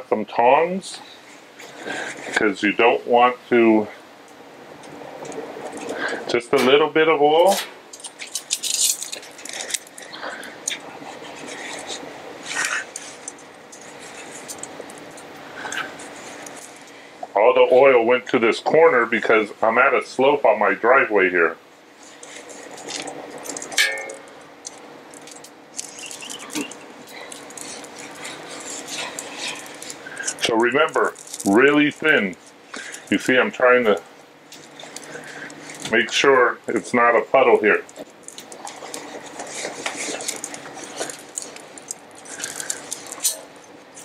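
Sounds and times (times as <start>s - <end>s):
metal clink: 23.8s - 24.3s.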